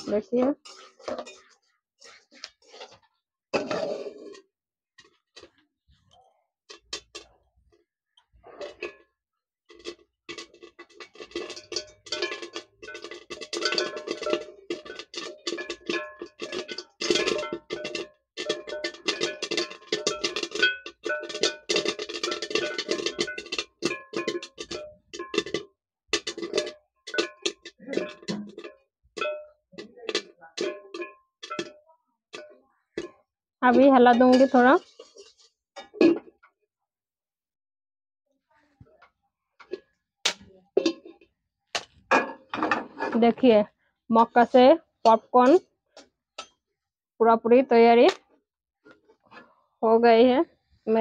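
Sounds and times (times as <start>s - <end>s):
corn kernels popping against metal lid: 6.7s - 7.3s, 9.7s - 31.8s, 32.4s - 35.4s.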